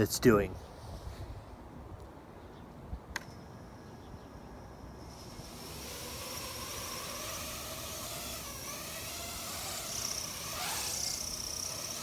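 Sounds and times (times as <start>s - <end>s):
quadcopter motors whining: 4.8s - 12.0s.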